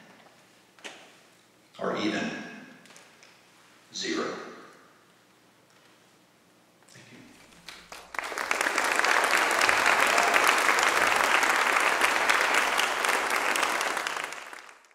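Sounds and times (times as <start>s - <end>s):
crowd applauding: 7.6s - 14.9s.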